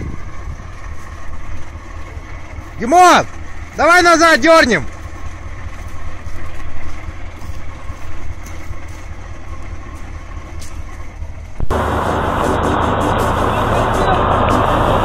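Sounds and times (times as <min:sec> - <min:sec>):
diesel truck engine idling: 0:00.0 - 0:15.0
loud rushing noise: 0:11.7 - 0:15.0.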